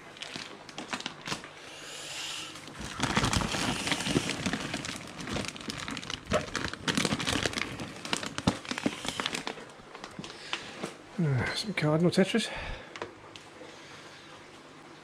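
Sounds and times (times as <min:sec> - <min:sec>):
plastic bags crinkling: 0:00.0 - 0:01.6, 0:02.6 - 0:11.0.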